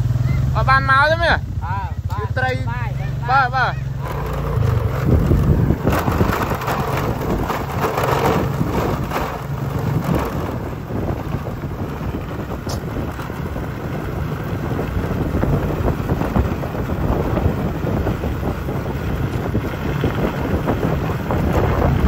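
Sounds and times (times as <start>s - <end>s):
wind buffeting microphone: 2.0s - 22.0s.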